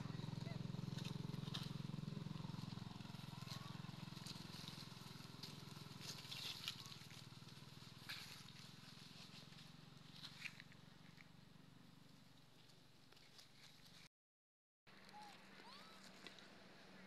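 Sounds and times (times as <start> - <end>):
low engine hum: 0.0 - 14.1
dry leaves crunching: 0.6 - 11.2.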